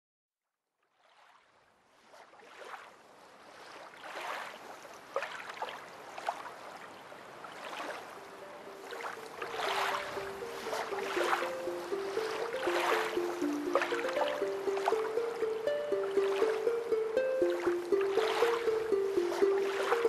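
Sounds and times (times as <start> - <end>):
held musical notes: 8.4 - 20.0
rushing surf-like noise: 8.4 - 20.0.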